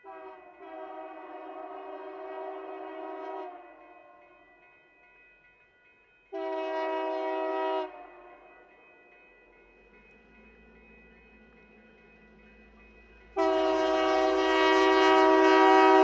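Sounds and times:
locomotive air horn blasts: 0.0 - 3.6, 6.3 - 8.4, 13.4 - 16.0.

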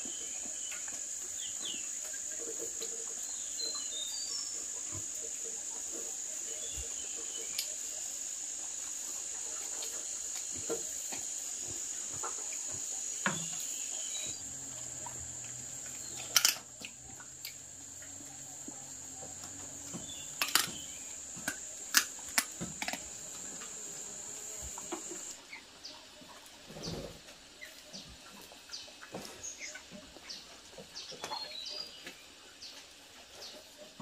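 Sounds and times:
high-pitched insect buzz: 0.0 - 25.4.

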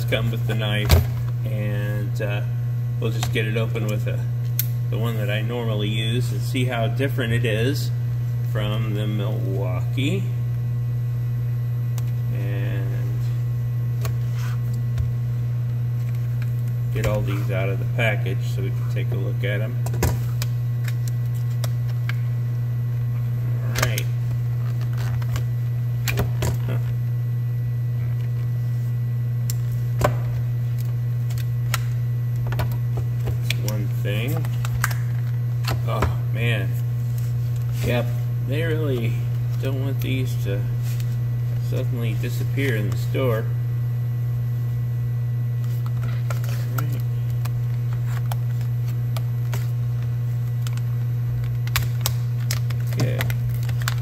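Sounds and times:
steady low hum: 0.0 - 54.0
plastic snapping and crackling: 30.8 - 35.8, 50.5 - 54.0.

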